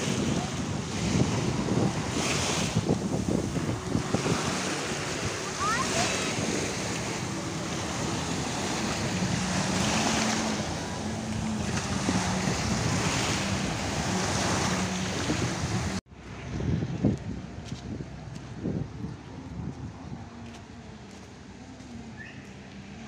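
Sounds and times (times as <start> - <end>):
small waves breaking on shore: 0.0 - 16.4
wind buffeting microphone: 0.0 - 22.4
outdoor street sound: 0.0 - 23.0.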